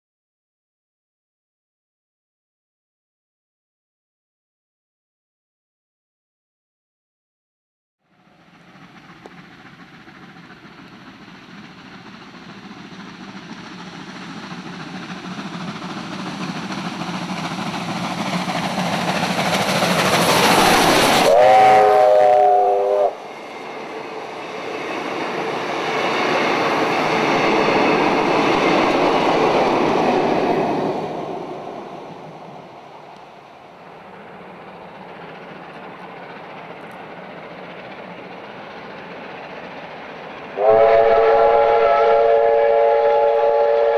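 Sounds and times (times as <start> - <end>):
steam locomotive running: 8.1 - 43.9
steam whistle chord: 21.2 - 23.2, 40.6 - 43.9.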